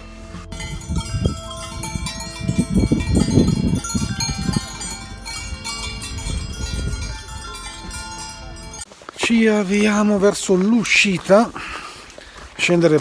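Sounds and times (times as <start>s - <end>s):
low rumble: 0.0s - 8.8s
goat bells jingling: 0.5s - 13.0s.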